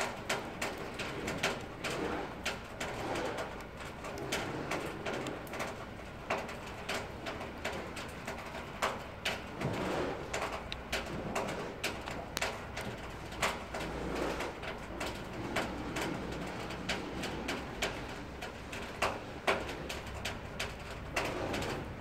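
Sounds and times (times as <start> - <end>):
sharp clicks and ticks: 10.4 - 13.6.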